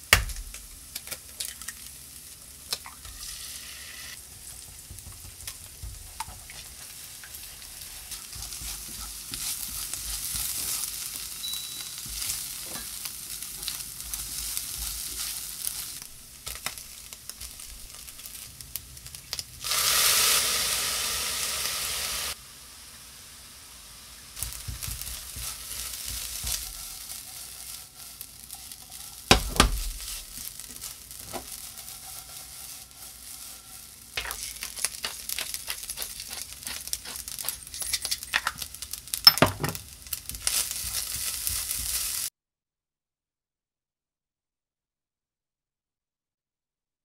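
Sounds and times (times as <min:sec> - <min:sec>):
food sizzling in a pan: 0:00.0 - 0:42.3
spatula scraping rice: 0:05.6 - 0:16.8, 0:24.4 - 0:38.3, 0:40.3 - 0:42.3.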